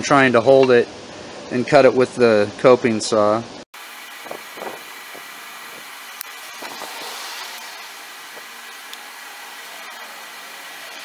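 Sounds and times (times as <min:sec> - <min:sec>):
background hiss: 0:03.2 - 0:11.0.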